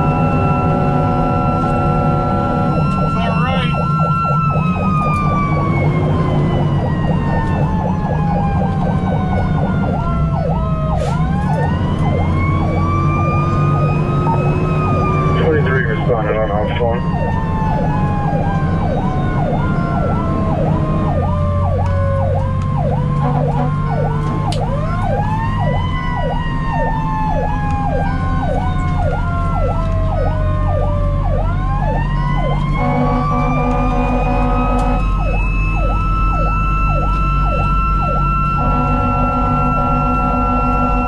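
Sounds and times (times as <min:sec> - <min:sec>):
diesel engine rumble: 0:00.0 - 0:41.0
electronic siren yelping: 0:00.0 - 0:41.0
wailing siren: 0:00.0 - 0:41.0
horn blasts: 0:23.2 - 0:23.8, 0:32.8 - 0:35.3, 0:38.5 - 0:41.0.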